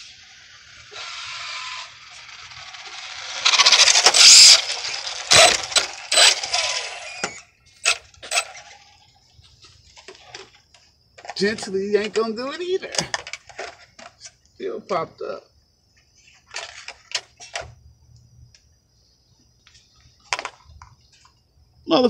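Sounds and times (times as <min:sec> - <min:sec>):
tyre hiss: 0:00.0 - 0:07.4
rc car motor whine: 0:00.0 - 0:14.4.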